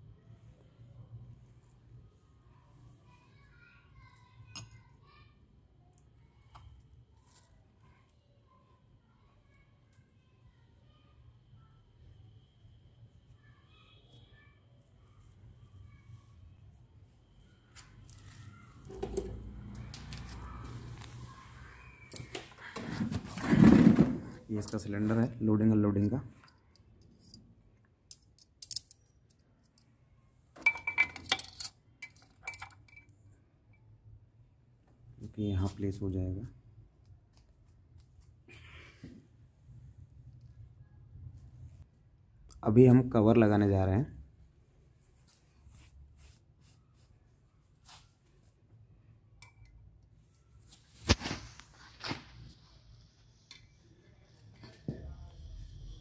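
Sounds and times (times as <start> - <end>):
metal parts clanking: 30.6 - 33.0.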